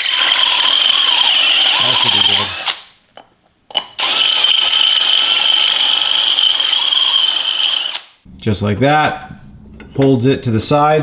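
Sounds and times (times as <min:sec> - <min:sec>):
cordless drill boring steel: 0:00.0 - 0:02.9, 0:04.0 - 0:08.2.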